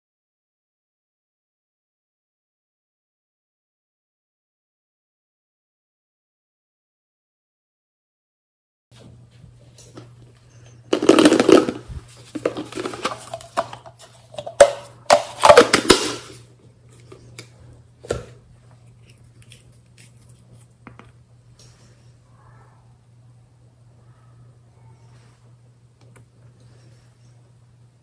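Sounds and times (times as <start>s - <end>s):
steady low hum: 9.0s - 28.0s.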